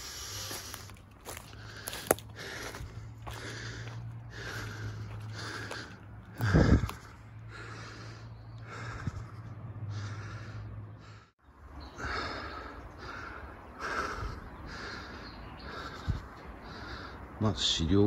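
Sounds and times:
footsteps rustling undergrowth: 0.0s - 7.2s.

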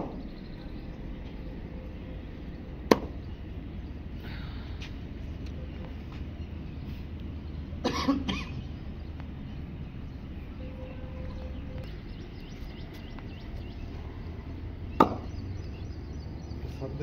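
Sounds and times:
low background hum: 0.0s - 17.0s
person coughing: 7.8s - 8.6s.

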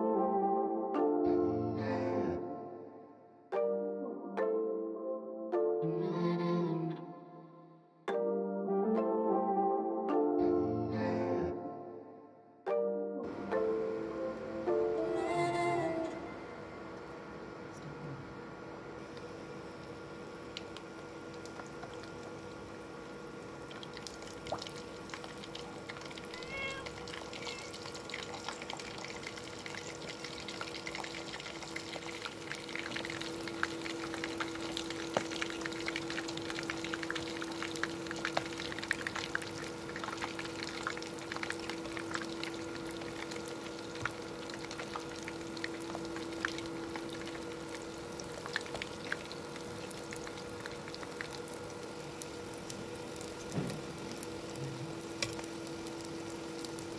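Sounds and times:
food deep-frying in oil: 19.0s - 56.9s.

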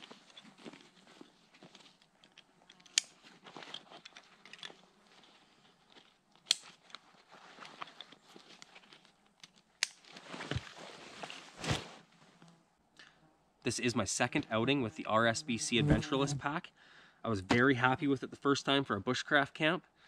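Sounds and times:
nylon straps rustling and scraping: 0.0s - 12.5s.

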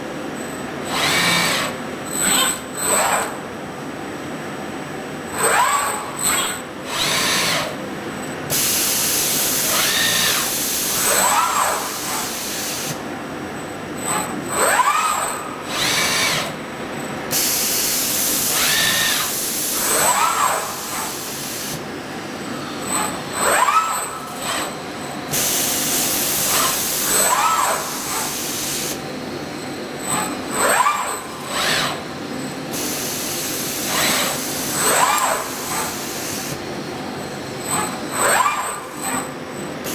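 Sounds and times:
robot arm servo whining: 0.9s - 3.4s, 5.3s - 7.8s, 8.5s - 13.0s, 14.0s - 16.6s, 17.3s - 21.6s, 22.6s - 29.0s, 30.0s - 32.1s, 32.7s - 36.6s, 37.5s - 39.9s
vacuum gripper air hiss: 8.5s - 9.7s.

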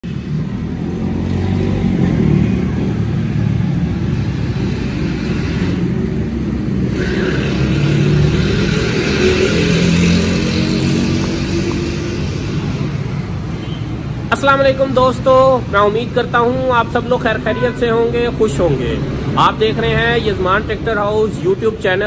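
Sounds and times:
engine revving: 0.0s - 13.6s.

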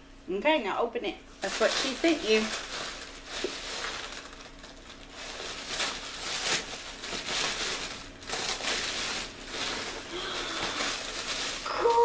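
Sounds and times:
package wrapping crinkling: 1.4s - 12.0s.

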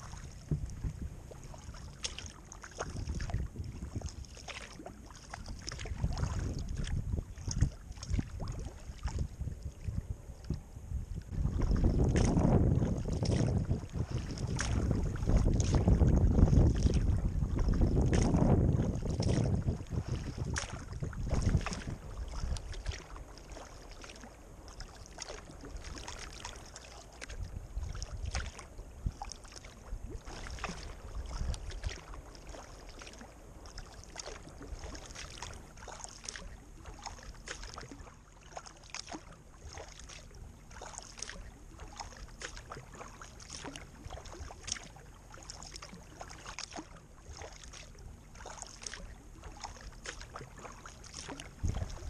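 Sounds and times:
wind buffeting microphone: 0.0s - 2.0s, 2.7s - 4.3s, 5.4s - 23.3s, 27.2s - 32.3s, 51.3s - 52.0s
paddle splashes and drips: 0.0s - 52.0s
water slapping hull: 0.0s - 52.0s.

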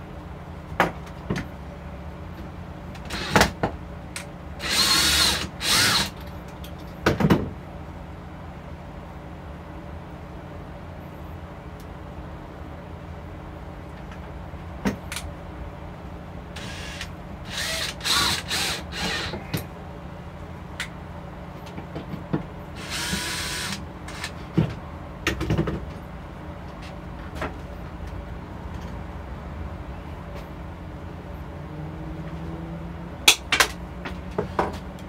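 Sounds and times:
cordless drill into plywood: 4.6s - 6.2s, 16.6s - 19.4s, 22.8s - 24.4s.

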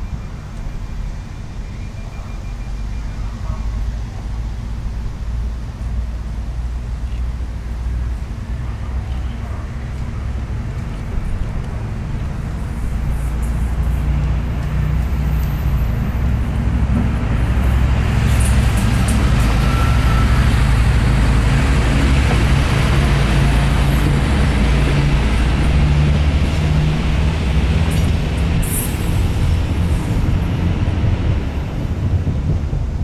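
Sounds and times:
diesel railcar idling: 0.0s - 33.0s
diesel railcar passing: 0.0s - 33.0s
train wheel rushing noise: 11.0s - 33.0s.

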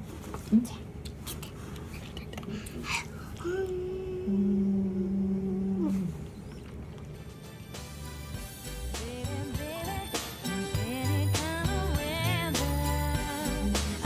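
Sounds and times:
man and child humming a note: 3.4s - 6.4s.

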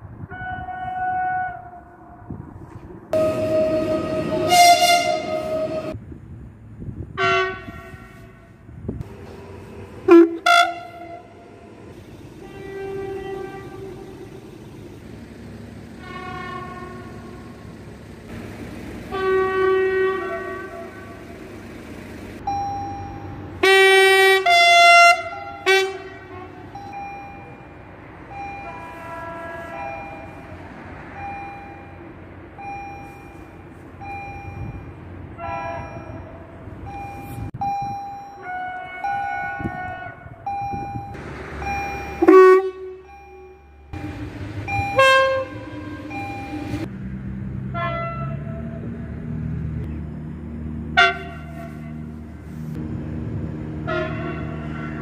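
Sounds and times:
electric train horn blasts: 0.3s - 2.2s, 3.2s - 6.0s, 7.2s - 8.6s, 10.1s - 11.4s, 12.4s - 14.4s, 16.0s - 17.5s, 19.1s - 21.2s, 23.6s - 26.8s, 28.5s - 30.4s, 35.3s - 37.0s, 38.4s - 40.5s, 42.2s - 43.2s, 44.0s - 46.8s, 47.7s - 48.9s, 51.0s - 52.2s, 53.8s - 55.0s
level crossing warning beeps: 22.4s - 23.6s, 26.7s - 29.0s, 29.8s - 30.5s, 31.1s - 35.0s, 35.7s - 39.8s, 40.5s - 46.9s.

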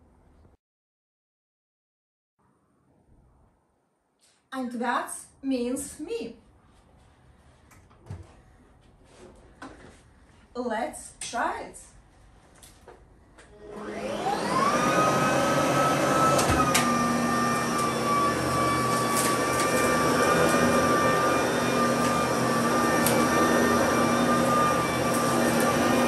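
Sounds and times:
vacuum cleaner motor whine: 13.5s - 26.0s.

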